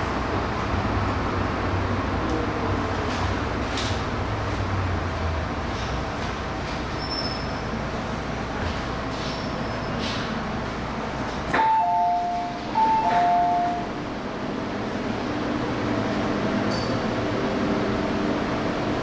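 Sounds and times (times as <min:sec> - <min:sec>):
train rumble: 0:00.0 - 0:19.0
two-note door chime: 0:11.6 - 0:13.9.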